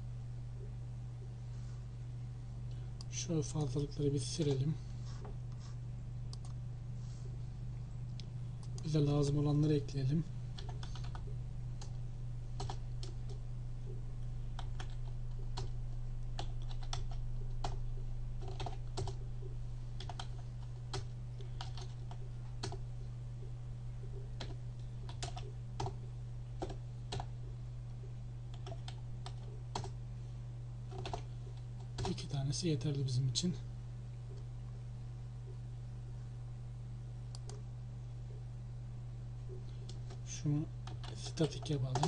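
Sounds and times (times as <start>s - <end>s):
low electrical hum: 0.0s - 42.0s.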